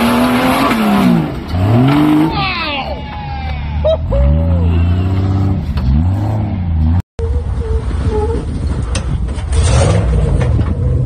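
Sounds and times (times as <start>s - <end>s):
engine revving: 0.0s - 2.4s, 4.1s - 7.0s, 9.5s - 11.0s.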